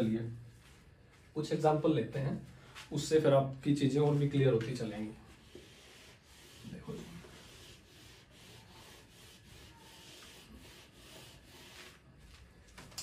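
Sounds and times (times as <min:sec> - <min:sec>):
eraser wiping whiteboard: 0:04.9 - 0:12.4.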